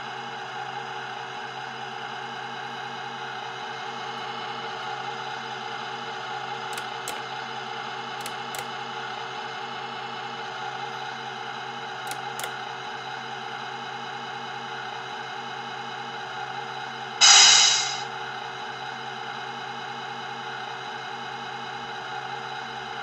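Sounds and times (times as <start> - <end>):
sharp clicks: 6.8 - 7.2, 8.2 - 8.6, 12.1 - 12.5.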